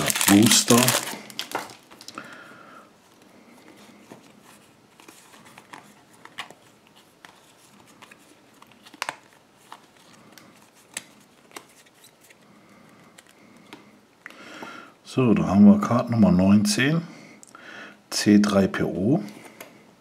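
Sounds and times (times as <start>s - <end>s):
cards rustling: 0.0s - 2.4s, 3.0s - 14.0s.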